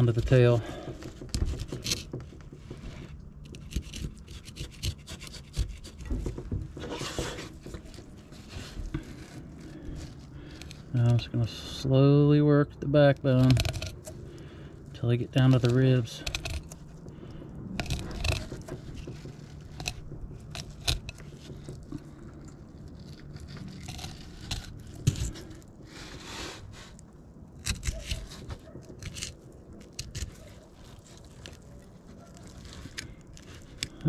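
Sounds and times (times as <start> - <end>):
low steady hum: 0.0 - 34.0
clicks and knocks on hard surface: 0.2 - 9.3, 15.5 - 25.6
knife scraping fish bone: 2.8 - 10.9, 13.4 - 14.6, 15.5 - 27.0, 27.6 - 34.0.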